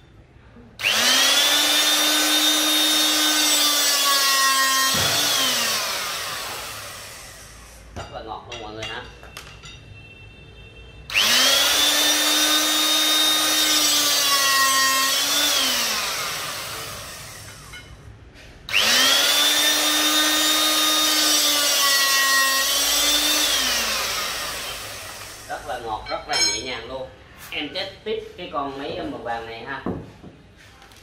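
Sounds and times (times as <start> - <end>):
hydraulic rebar cutter whining: 0.8 - 7.8, 11.1 - 17.9, 18.7 - 25.5.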